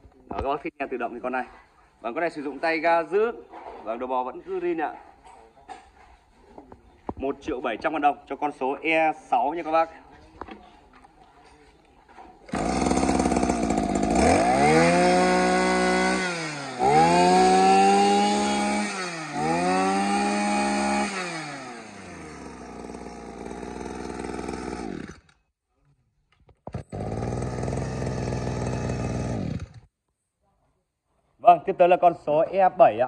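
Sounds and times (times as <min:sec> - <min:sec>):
brush-cutter engine revving: 0:12.5 - 0:25.4, 0:26.6 - 0:29.9.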